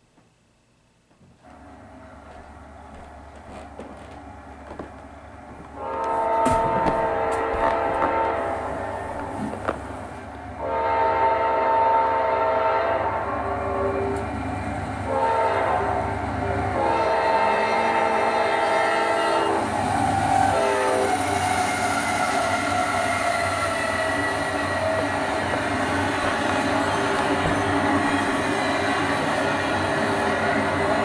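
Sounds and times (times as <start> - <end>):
locomotive horn blasts: 5.8 - 9.3, 10.6 - 14.2, 15.1 - 19.7, 20.5 - 21.4.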